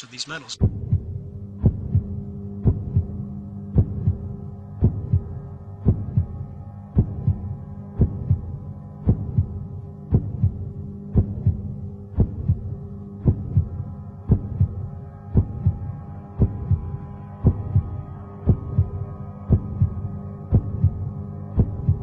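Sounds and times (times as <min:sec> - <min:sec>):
heartbeat-like double thump: 0:00.6 - 0:03.2, 0:03.8 - 0:05.3, 0:05.9 - 0:06.3, 0:07.0 - 0:07.4
steady low drone: 0:00.6 - 0:22.0.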